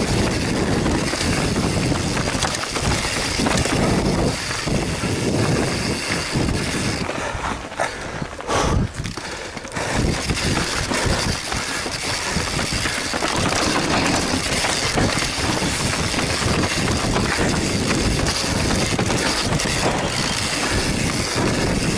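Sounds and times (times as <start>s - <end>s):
wind rushing over microphone: 0.0s - 9.2s, 9.8s - 21.9s
bike rattling and knocking: 0.0s - 21.9s
tyres rolling over dirt and leaves: 10.1s - 21.9s.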